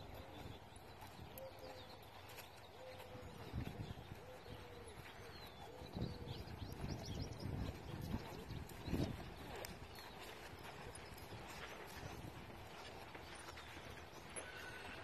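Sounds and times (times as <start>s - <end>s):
horse hooves thudding on sand: 0.0s - 15.0s
small birds chirping faintly: 0.0s - 15.0s
dove cooing: 2.8s - 3.3s, 4.2s - 4.9s.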